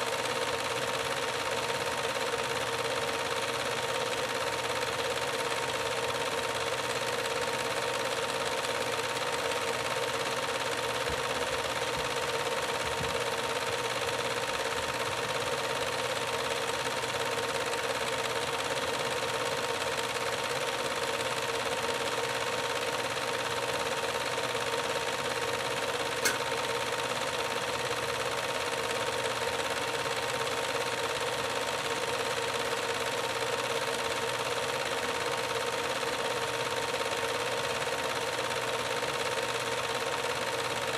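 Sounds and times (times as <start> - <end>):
film projector whirring: 0.0 - 40.9
short click: 26.2 - 26.5.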